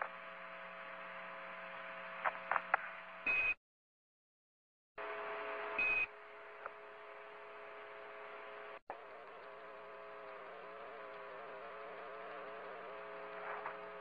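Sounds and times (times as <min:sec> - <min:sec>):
steady electronic buzz: 0:05.0 - 0:14.0
radio transmission hiss: 0:08.9 - 0:14.0.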